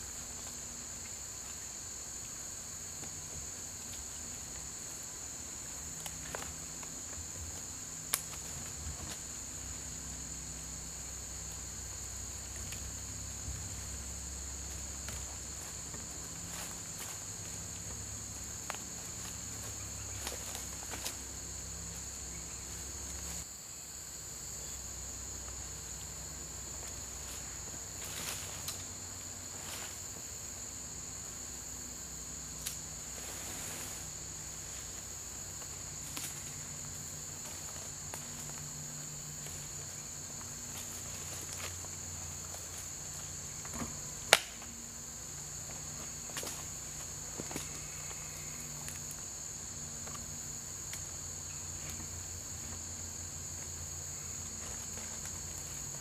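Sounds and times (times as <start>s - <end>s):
insects chorus: 0.0s - 56.0s.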